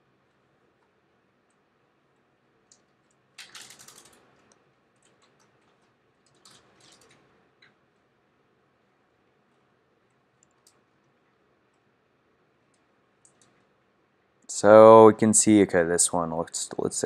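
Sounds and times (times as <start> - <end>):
computer keyboard and mouse clicking: 2.6 - 7.8, 10.1 - 11.1, 12.7 - 13.7.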